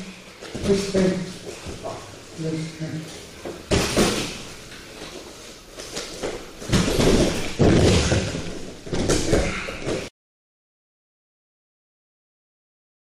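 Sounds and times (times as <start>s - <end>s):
bodies thudding on gym mats: 0.5s - 2.1s, 3.4s - 5.2s, 5.8s - 10.1s.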